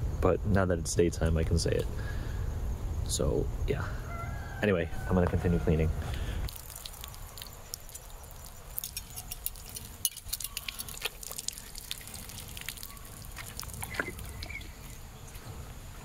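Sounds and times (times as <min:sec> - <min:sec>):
small clicks and clinks: 0:08.8 - 0:11.2.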